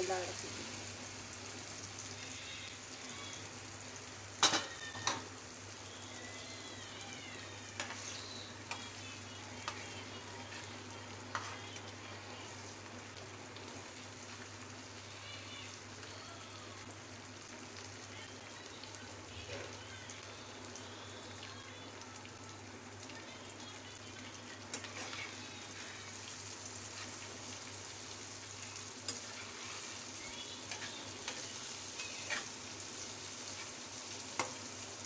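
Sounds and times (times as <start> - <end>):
eggs sizzling in a pan: 0.0 - 35.0
utensils knocking on pan: 4.4 - 5.2.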